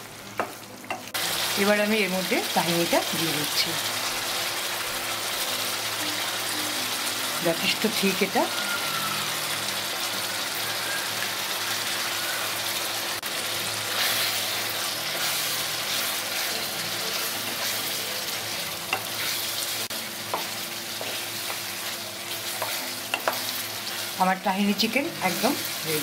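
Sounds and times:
chicken sizzling in frying pan: 0.0s - 26.0s
spatula tapping pan: 22.5s - 23.5s.

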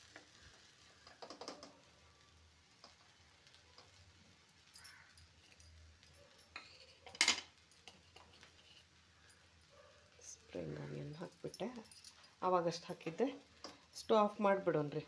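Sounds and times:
spatula clattering on a plate: 6.5s - 8.5s
spatula scraping in a wok: 6.5s - 9.0s.

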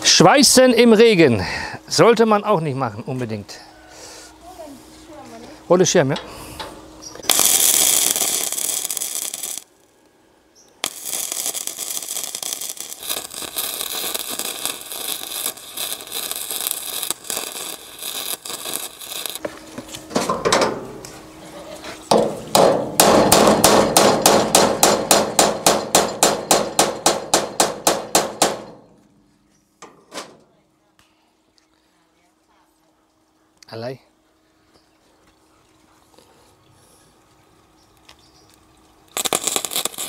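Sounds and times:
arc welding crackling: 7.0s - 19.5s, 22.1s - 28.7s, 39.1s - 40.0s.

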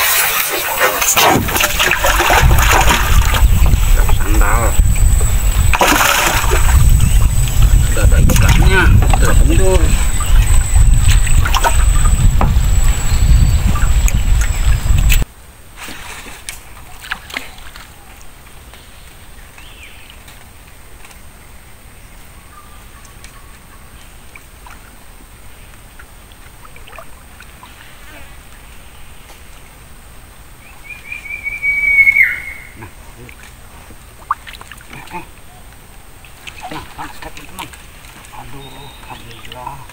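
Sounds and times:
paddle splashes: 0.0s - 12.7s, 15.8s - 18.0s, 25.9s - 28.4s, 33.2s - 35.4s, 36.2s - 39.9s
trickling water: 0.0s - 15.3s, 23.9s - 28.7s, 32.8s - 39.9s
high insect drone: 2.5s - 15.2s.

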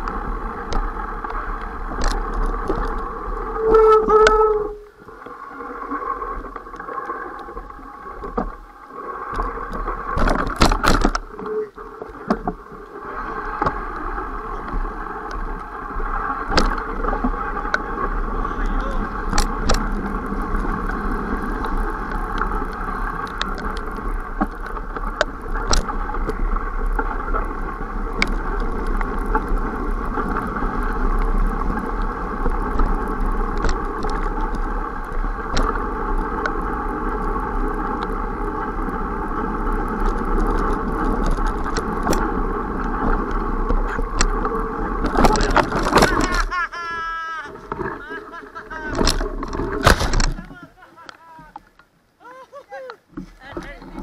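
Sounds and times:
bike knocking and rattling: 0.0s - 4.8s, 9.4s - 11.6s, 13.6s - 46.8s, 48.7s - 50.6s
bike tyres on muddy trail: 0.0s - 54.0s.

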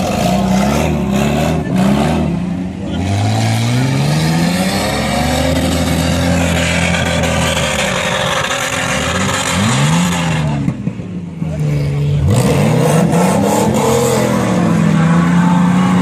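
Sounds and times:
engine revving hard: 0.0s - 10.6s, 12.2s - 16.0s.

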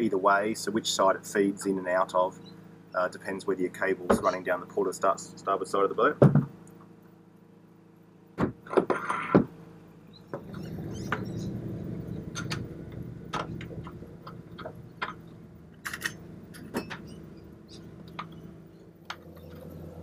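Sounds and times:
low steady hum: 0.0s - 20.0s
metal tools clattering: 15.8s - 17.1s.

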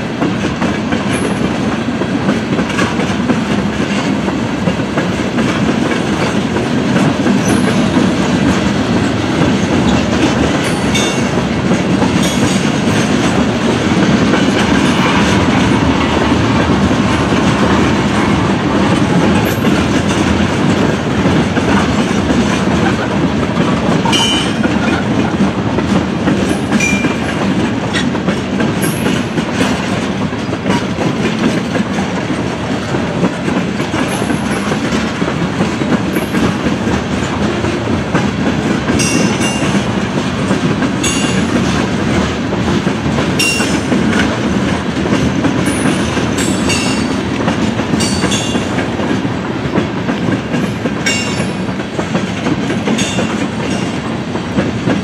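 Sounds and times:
clickety-clack over rail joints: 0.0s - 55.0s
train wheels rumbling: 0.0s - 55.0s.

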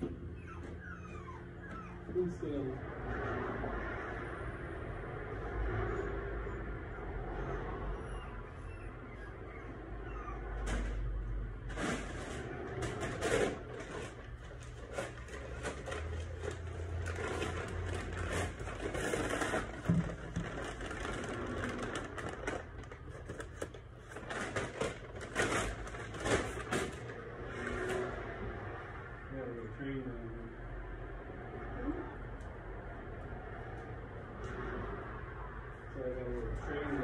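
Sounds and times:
rustling: 11.7s - 27.7s.

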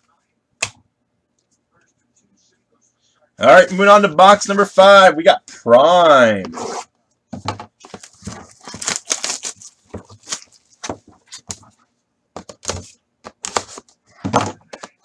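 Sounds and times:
plastic wrap crinkling and tearing: 7.8s - 10.9s.

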